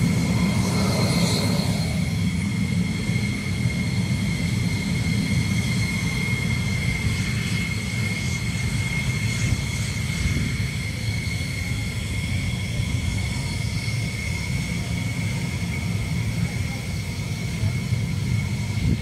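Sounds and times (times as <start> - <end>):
jet engine running: 0.0 - 19.0.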